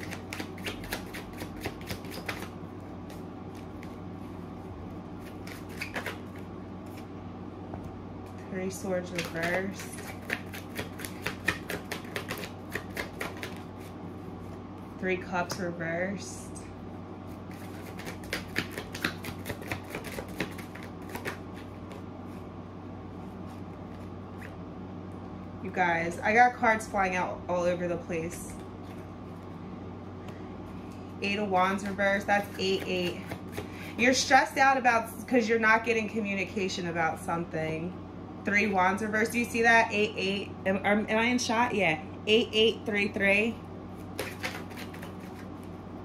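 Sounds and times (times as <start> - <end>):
cards flicking: 0.0 - 4.0, 5.2 - 6.5, 9.1 - 13.8, 17.5 - 22.1, 44.0 - 45.7
cards being shuffled: 0.0 - 7.1, 9.0 - 14.6, 17.3 - 22.4, 31.7 - 34.0, 44.0 - 45.8
low steady hum: 0.0 - 46.0.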